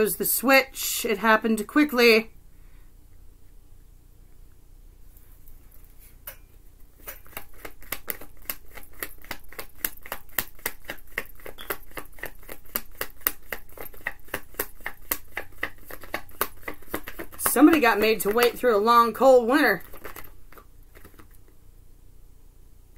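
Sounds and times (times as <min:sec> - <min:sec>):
cards being shuffled: 0:07.1 - 0:18.8, 0:19.7 - 0:21.5.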